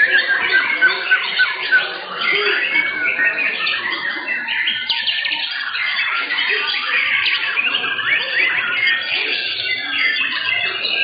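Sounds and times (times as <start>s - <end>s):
birds singing in competition: 0.0s - 11.0s.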